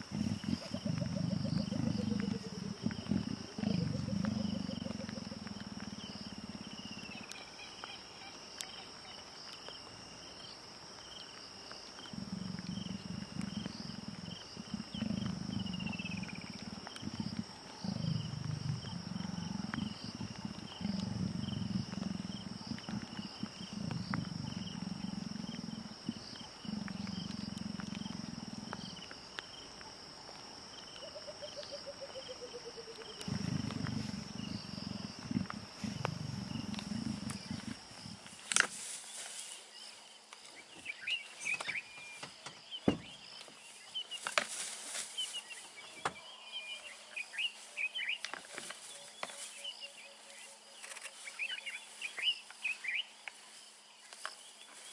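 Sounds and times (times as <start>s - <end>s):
leopards growling: 0.0s - 7.6s, 12.0s - 38.4s
insects chirring: 0.0s - 54.9s.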